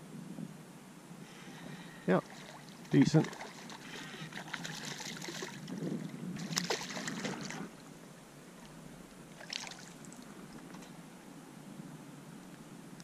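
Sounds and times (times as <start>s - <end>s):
fish splashing in water: 2.2s - 7.7s, 9.3s - 10.2s.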